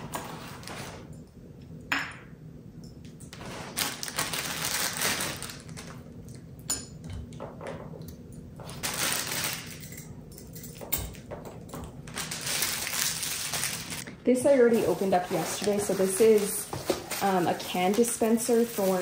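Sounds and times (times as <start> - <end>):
plastic packaging crinkling: 3.4 - 6.2, 8.6 - 10.0, 12.0 - 19.0.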